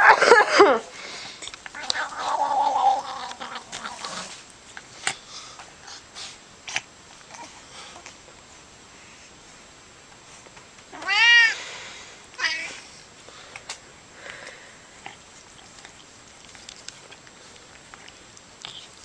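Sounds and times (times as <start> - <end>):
cat meowing: 10.9 - 11.6.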